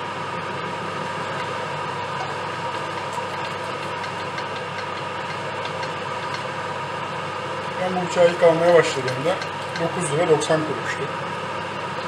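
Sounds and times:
knife and fork ticking: 2.9s - 6.5s, 8.9s - 10.0s.

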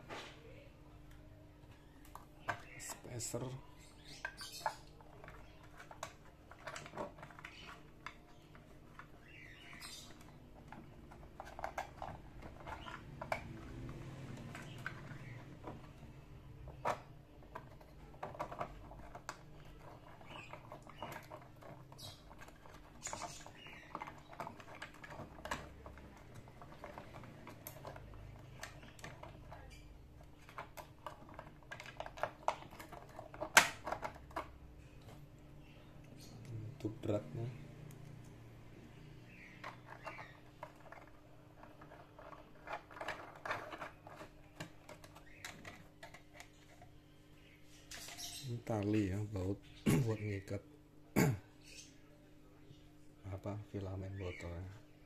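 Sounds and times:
plastic parts clicking: 4.0s - 35.2s.

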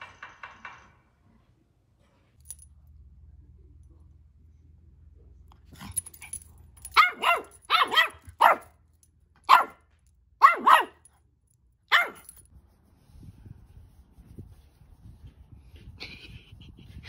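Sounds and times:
puppy barking: 6.9s - 8.7s, 9.5s - 9.8s, 10.4s - 11.1s, 11.9s - 12.4s.

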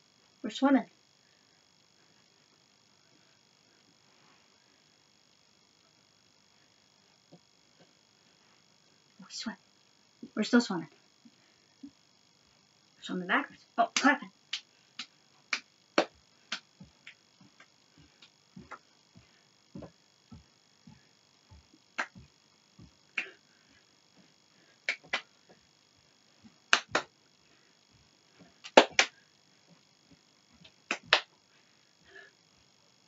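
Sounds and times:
hand claps: 14.0s - 18.8s, 22.0s - 22.3s, 23.2s - 23.4s, 24.9s - 25.2s, 26.7s - 27.1s, 28.6s - 29.2s, 30.9s - 31.3s
feet stepping on floor: 16.0s - 23.4s.

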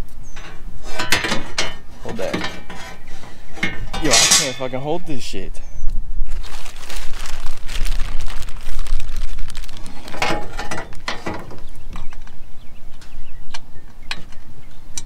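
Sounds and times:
metal bolts clinking: 0.0s - 5.0s, 10.1s - 11.6s
plastic bag rustling: 6.3s - 11.8s.

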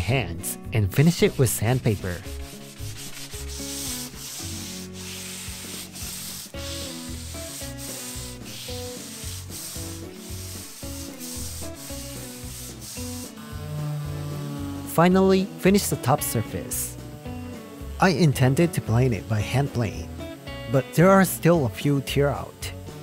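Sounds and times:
sandpaper rubbing on wood: 1.0s - 23.0s.

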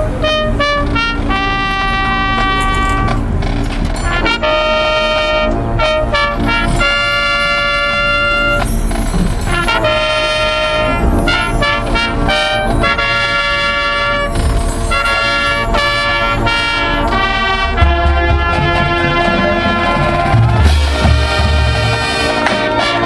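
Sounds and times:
trumpets playing held notes: 0.0s - 23.0s
drum hits: 17.2s - 23.0s.

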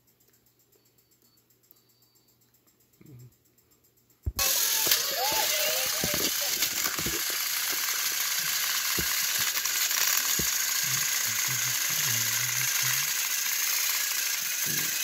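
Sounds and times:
toy train motors whirring: 4.3s - 15.0s
plastic gears rattling: 4.4s - 15.0s.

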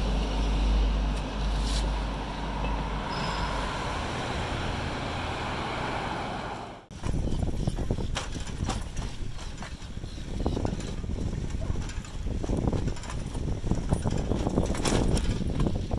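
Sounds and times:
cars passing: 0.0s - 6.9s
low rumbling: 0.0s - 9.3s.

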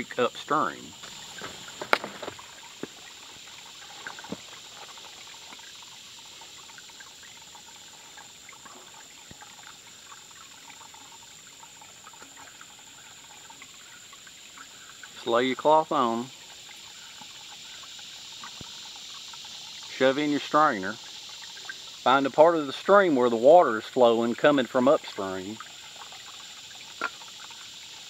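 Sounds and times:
creek trickling: 0.0s - 28.0s
metal water bottle clicks and knocks: 1.0s - 3.0s.

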